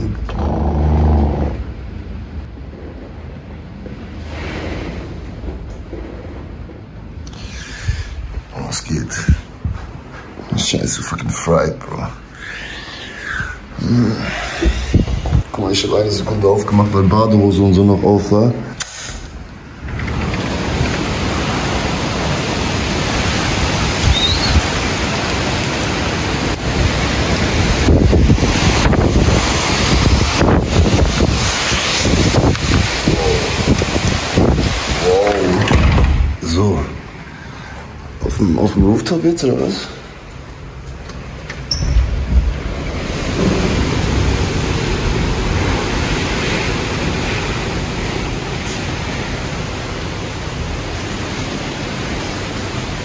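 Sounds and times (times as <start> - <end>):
heavy rain: 0.0 - 53.0
hurricane wind: 0.0 - 53.0
door squeak: 0.3 - 1.6, 24.0 - 24.6, 41.5 - 42.2
wind gusts buffeting microphone: 14.6 - 16.4, 19.8 - 36.4, 41.8 - 52.8.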